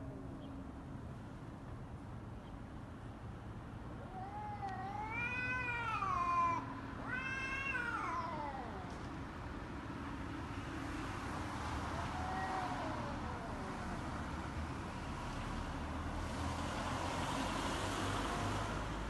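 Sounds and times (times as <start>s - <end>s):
cat yowling: 4.0s - 9.0s, 11.9s - 14.0s.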